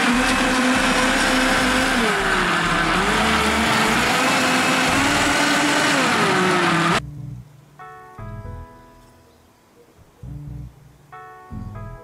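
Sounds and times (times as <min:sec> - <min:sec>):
blender motor whining: 0:00.0 - 0:07.0.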